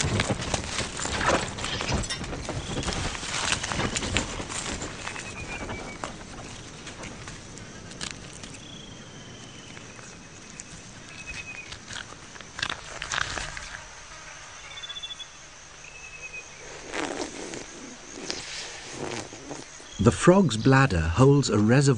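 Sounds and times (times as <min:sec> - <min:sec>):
irregular scrapes and knocks: 0:00.0 - 0:08.6
faint high insect drone: 0:00.0 - 0:21.9.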